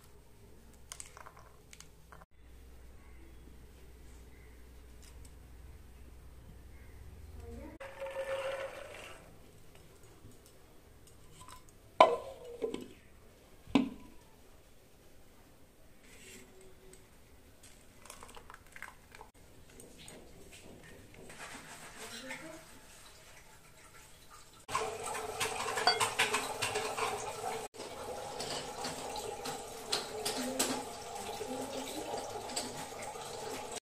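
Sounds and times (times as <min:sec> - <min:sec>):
running water: 0:21.2 - 0:33.8.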